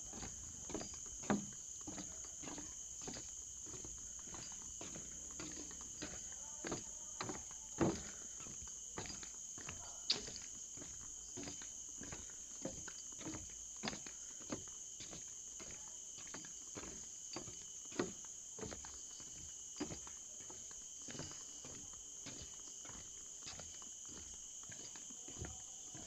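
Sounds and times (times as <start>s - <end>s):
high-pitched insect chorus: 0.0s - 26.0s.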